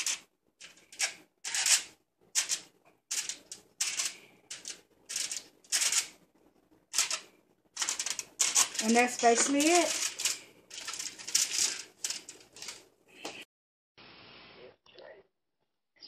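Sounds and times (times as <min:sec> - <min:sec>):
aluminium foil crinkling: 0:00.0 - 0:06.2, 0:06.9 - 0:12.9.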